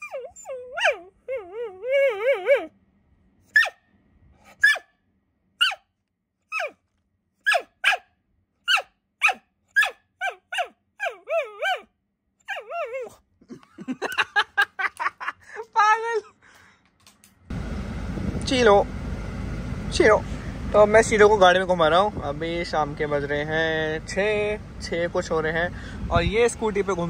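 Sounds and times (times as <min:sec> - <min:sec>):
dog whining and yelping: 0:00.0 - 0:02.7, 0:03.5 - 0:03.8, 0:04.4 - 0:04.9, 0:05.6 - 0:05.8, 0:06.5 - 0:06.8, 0:07.4 - 0:08.0, 0:08.6 - 0:13.2.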